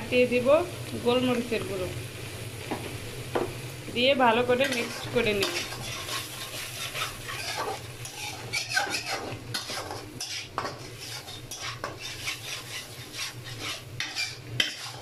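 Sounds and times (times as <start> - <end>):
food sizzling in oil: 0.0 - 15.0
metal spatula scraping wok: 4.5 - 15.0.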